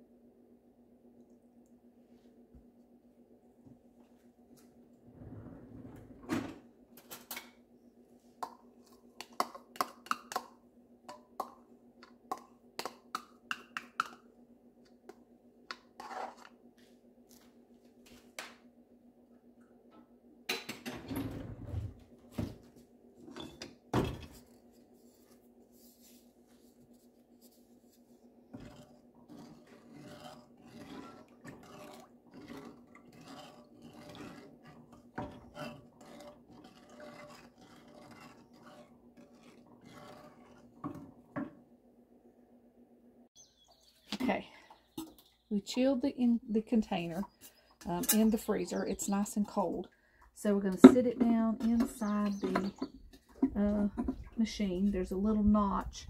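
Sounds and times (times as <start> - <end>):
low steady hum: 14.0 - 56.0
wooden spoon scraping saucepan: 15.7 - 16.6, 23.2 - 41.6, 50.6 - 55.3.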